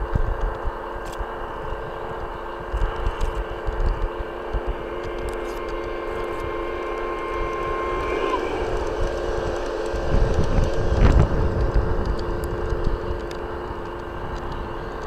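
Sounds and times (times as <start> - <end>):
model train hum and track rumble: 0.0 - 15.0
thin steady tone: 1.6 - 11.0
wind buffeting microphone: 1.6 - 15.0.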